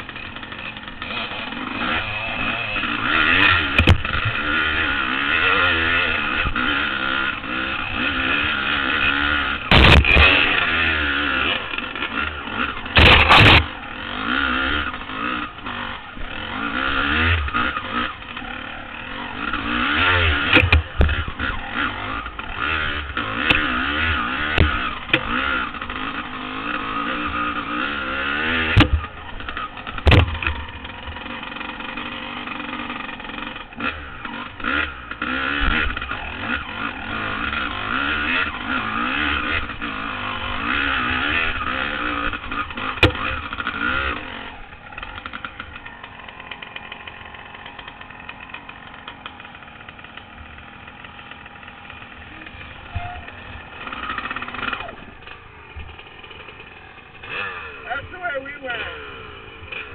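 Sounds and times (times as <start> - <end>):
dirt bike engine revving: 0.0 - 59.9
sharp knocks: 9.7 - 10.4, 28.7 - 29.0, 30.0 - 30.6, 43.0 - 43.4.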